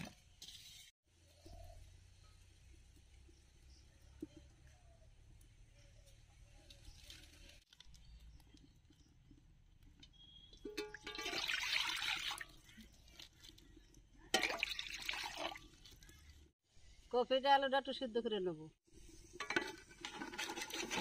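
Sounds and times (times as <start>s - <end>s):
water pouring into metal wok: 11.0s - 12.7s, 14.4s - 16.0s.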